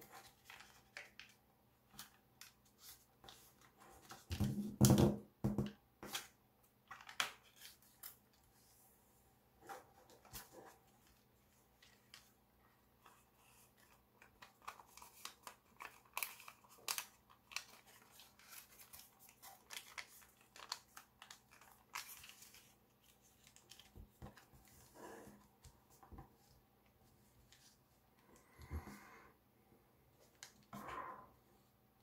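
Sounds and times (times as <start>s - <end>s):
foil paper crinkling: 14.3s - 23.9s.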